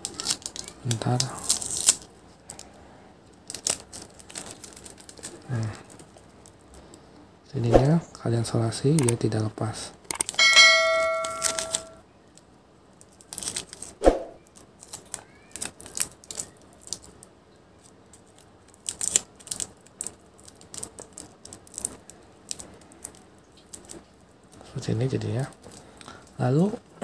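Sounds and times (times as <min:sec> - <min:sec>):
adhesive tape crackling: 0:00.0 - 0:02.7, 0:03.4 - 0:06.6, 0:13.0 - 0:26.2
ringing chime: 0:10.4 - 0:12.0.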